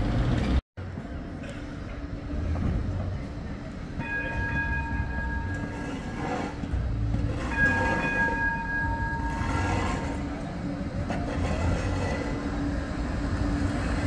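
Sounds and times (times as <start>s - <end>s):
street traffic rumble: 0.0s - 14.0s
tram warning horn blasts: 4.0s - 14.0s.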